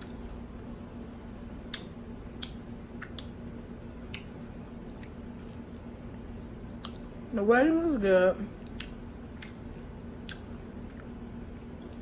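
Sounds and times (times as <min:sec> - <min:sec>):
faint steady hum: 0:00.0 - 0:12.0
person chewing food: 0:01.6 - 0:03.4, 0:04.0 - 0:07.2, 0:08.6 - 0:12.0
wet mouth clicks and smacks: 0:01.6 - 0:03.4, 0:04.1 - 0:04.3, 0:04.9 - 0:05.7, 0:06.8 - 0:07.2, 0:08.6 - 0:11.8.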